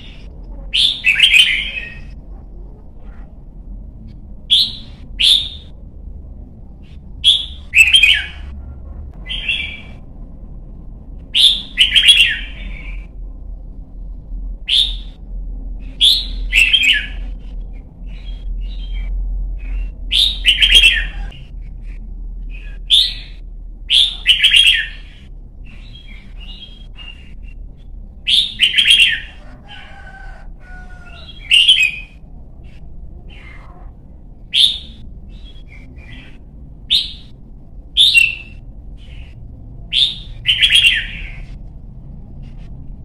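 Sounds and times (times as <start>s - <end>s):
bird chirping song: 0.0s - 3.4s, 4.4s - 5.8s, 6.7s - 8.6s, 9.2s - 10.0s, 11.3s - 13.3s, 14.6s - 41.6s.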